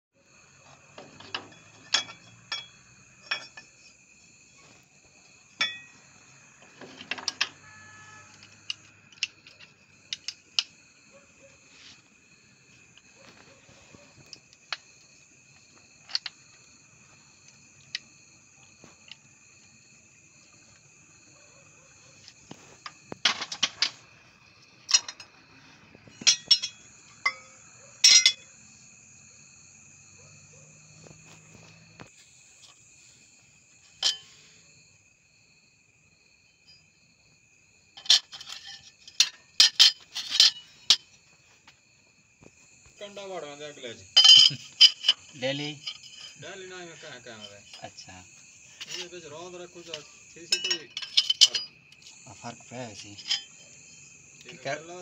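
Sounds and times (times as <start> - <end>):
crickets chirping: 0.2 - 55.0
metal parts and tools clinking: 0.9 - 4.0, 5.6 - 6.0, 6.6 - 10.8, 16.0 - 16.4, 22.5 - 24.1, 24.8 - 25.4, 26.0 - 28.5, 33.8 - 34.4, 38.0 - 41.2, 44.1 - 48.0, 48.7 - 53.8.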